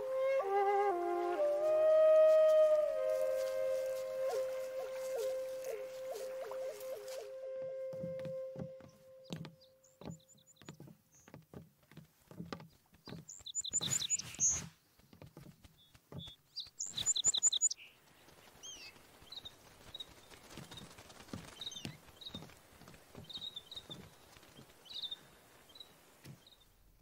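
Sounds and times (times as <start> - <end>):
swooping bird calls: 0.0 - 11.4, 13.1 - 15.1, 15.7 - 26.7
birds chirping: 4.0 - 26.9
soft knocks: 8.0 - 13.3.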